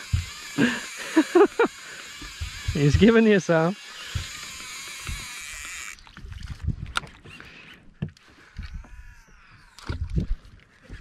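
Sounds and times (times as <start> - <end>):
knocks and thumps on boat deck: 0.0 - 0.5, 2.2 - 3.3, 4.0 - 5.3.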